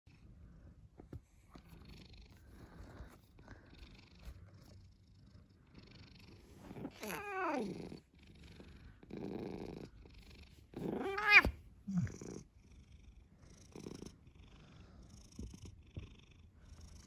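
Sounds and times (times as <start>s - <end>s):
cat purring: 0.1s - 17.0s
cat meowing: 11.0s - 11.6s.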